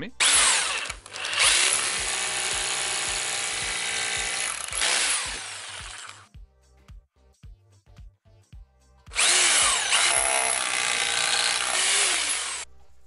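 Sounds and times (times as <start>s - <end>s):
hammer drill drilling into concrete: 0.2s - 6.3s, 9.1s - 12.7s.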